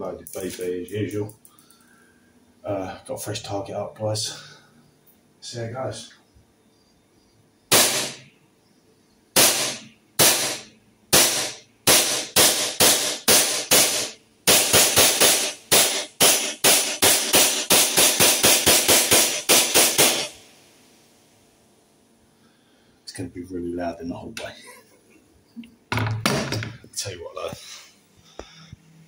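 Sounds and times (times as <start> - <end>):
airsoft pistol shots: 7.7 - 8.3, 9.4 - 20.4.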